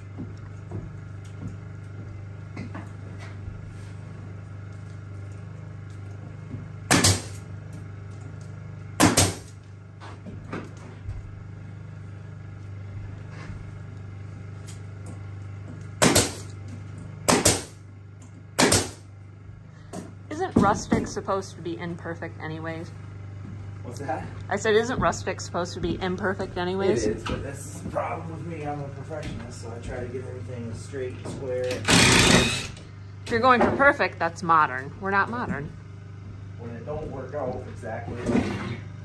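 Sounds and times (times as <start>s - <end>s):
steady low hum: 0.0s - 39.0s
pneumatic nail gun shots: 6.9s - 7.4s, 9.0s - 9.6s, 16.0s - 16.5s, 17.3s - 17.8s, 18.6s - 19.0s, 31.7s - 32.8s.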